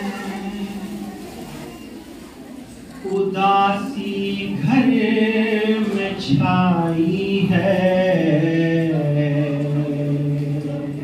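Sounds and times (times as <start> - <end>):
man chanting a lament: 3.1 - 11.0.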